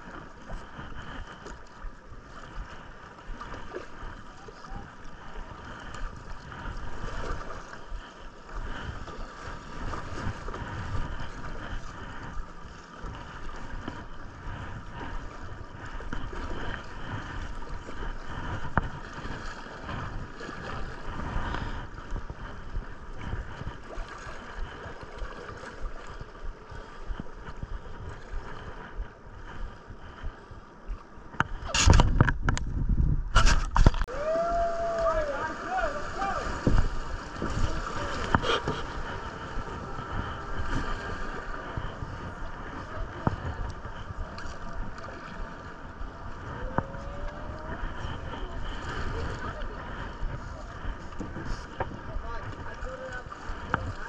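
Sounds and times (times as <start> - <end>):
wind buffeting microphone: 0.0 - 54.0
river water rushing: 33.9 - 41.9.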